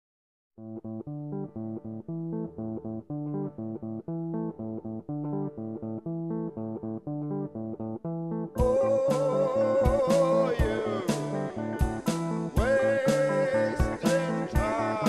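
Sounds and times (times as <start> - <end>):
music with repeating riff: 8.6 - 15.0.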